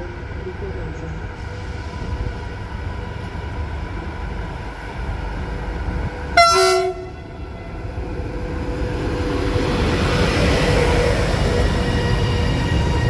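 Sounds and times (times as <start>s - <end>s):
train rumble: 0.0s - 13.0s
train horn blast: 6.4s - 7.8s.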